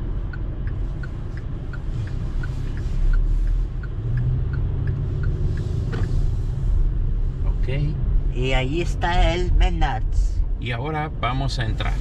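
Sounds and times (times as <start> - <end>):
turn signal clicking: 0.0 - 7.0
car engine and road rumble: 0.0 - 12.0.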